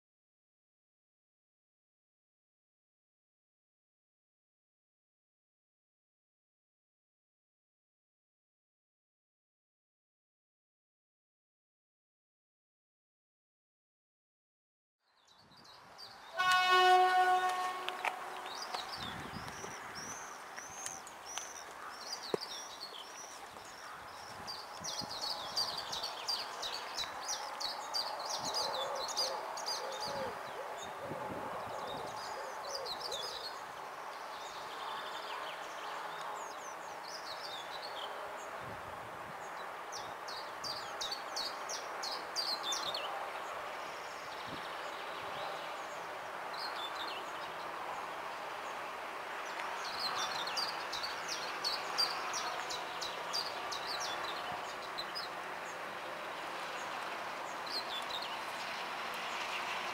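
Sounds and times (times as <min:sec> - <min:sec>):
small birds chirping: 0:15.1 - 0:38.5, 0:39.4 - 0:59.9.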